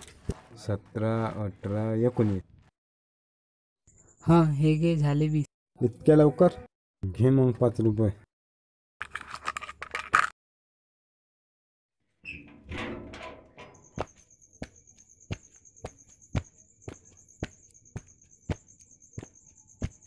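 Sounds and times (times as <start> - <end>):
clatter of small objects: 9.0 - 10.3
insects chirring: 13.4 - 20.0
footsteps on bare ground: 14.0 - 20.0.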